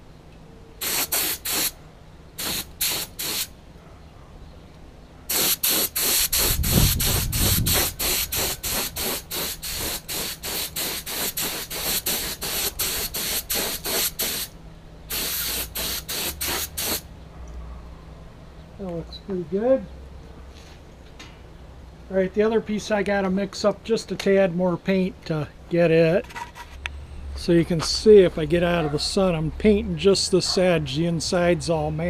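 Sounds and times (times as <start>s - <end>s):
paint spray gun hissing: 0.8s - 1.8s, 2.4s - 3.5s, 5.3s - 14.5s, 15.1s - 17.0s.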